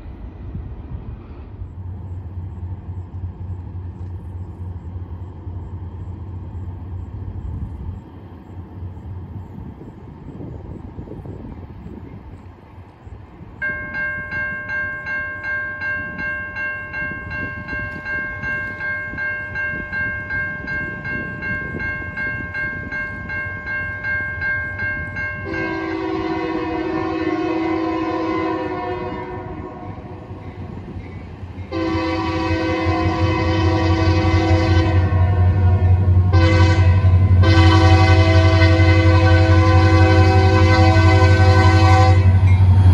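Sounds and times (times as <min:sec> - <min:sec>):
low train rumble: 0:00.0 - 0:42.9
crossing signal bell dinging: 0:13.6 - 0:28.2
locomotive air horn blast: 0:25.4 - 0:30.2, 0:31.7 - 0:42.9.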